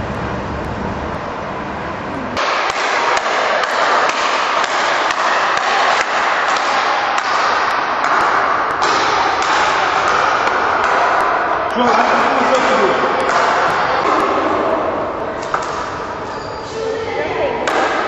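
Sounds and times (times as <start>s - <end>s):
noisy din in sports hall: 0.0s - 18.0s
rackets striking ball: 2.4s - 16.4s, 17.6s - 18.0s.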